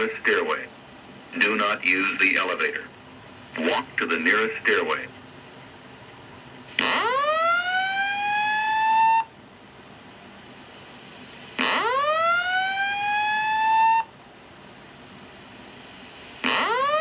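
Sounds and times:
fire alarm whoop tone: 6.8 - 9.3, 11.6 - 14.1, 16.4 - 17.0.

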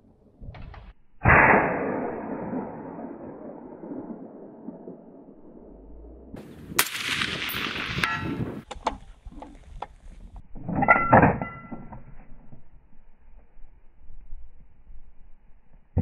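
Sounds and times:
rifle shot echoing: 1.2 - 5.5, 6.7 - 8.7
metallic ring: 10.6 - 12.1.

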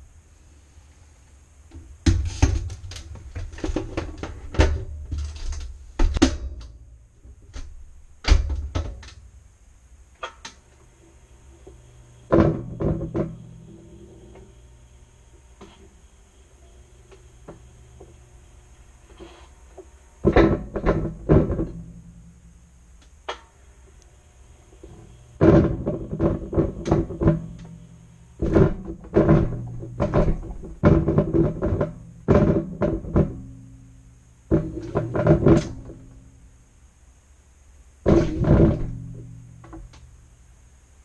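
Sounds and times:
washing machine motor hum: 10.1 - 23.0, 23.7 - 36.6, 37.9 - 41.0
washing machine drum knocking: 12.3 - 13.6, 20.2 - 21.9, 25.4 - 27.8, 28.4 - 33.6, 34.5 - 36.1, 38.1 - 39.9.

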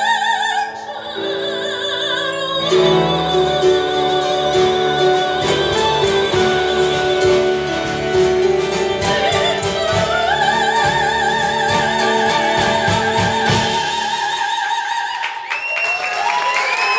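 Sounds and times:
backing music: 0.0 - 15.0
woman singing opera: 0.0 - 16.8
audience applauding and cheering: 12.9 - 16.9.

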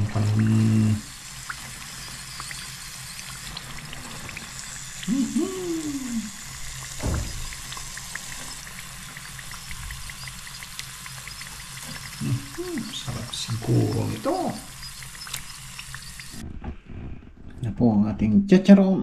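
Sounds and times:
oil sizzling with crackling pops: 0.0 - 16.4
single knock: 7.0 - 7.5.

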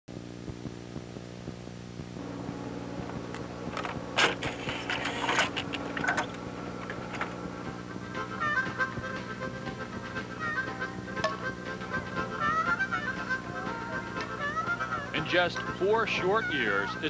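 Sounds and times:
mechanical ticking: 0.1 - 17.0
steady hum: 0.1 - 17.0
creaking and scraping: 2.4 - 8.3.

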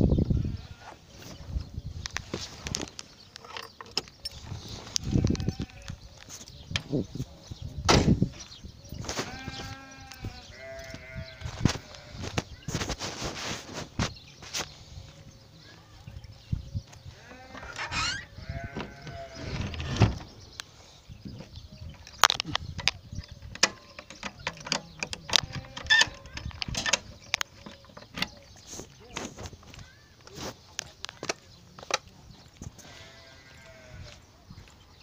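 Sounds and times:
livestock bleating: 9.2 - 12.3, 17.1 - 19.5, 32.8 - 34.2
sharp clicks and knocks: 22.0 - 28.5.

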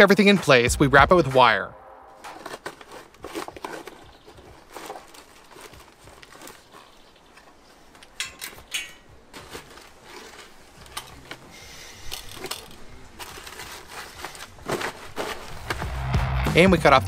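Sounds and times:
foil crinkling: 2.2 - 8.2, 9.2 - 15.8.

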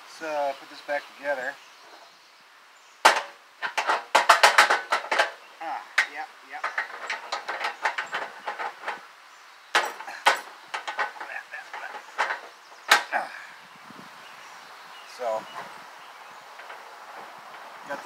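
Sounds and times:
hammer striking metal bolt: 3.0 - 5.3.

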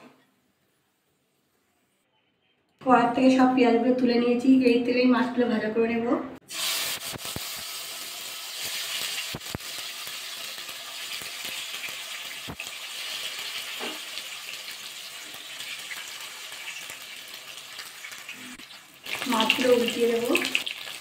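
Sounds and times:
fish sizzling in hot oil: 6.4 - 21.0.

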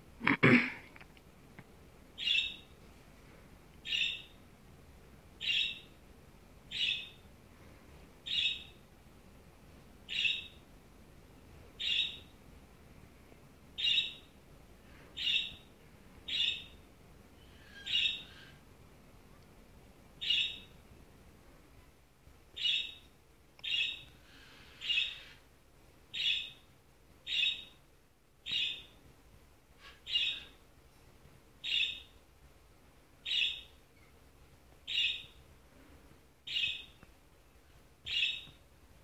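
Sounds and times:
cockatoo calling: 17.4 - 18.6.

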